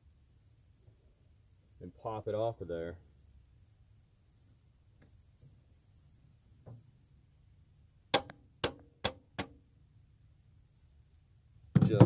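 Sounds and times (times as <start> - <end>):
metal strikes on water pump: 8.1 - 9.6.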